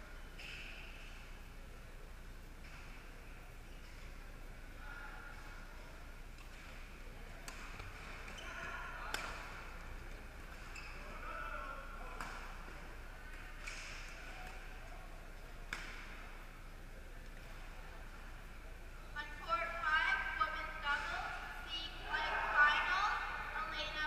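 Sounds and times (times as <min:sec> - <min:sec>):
murmur of voices: 0:00.0 - 0:24.0
rackets striking shuttlecock: 0:15.7 - 0:16.4.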